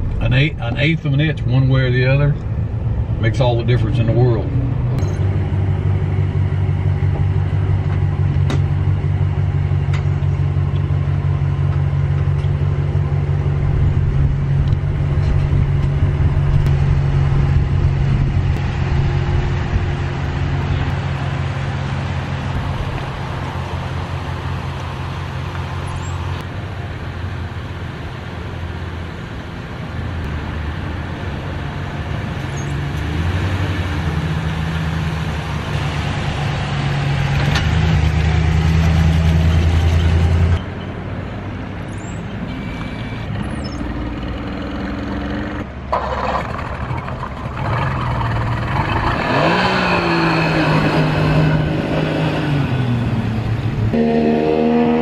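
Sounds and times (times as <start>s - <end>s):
outboard motor running: 45.9s - 49.2s.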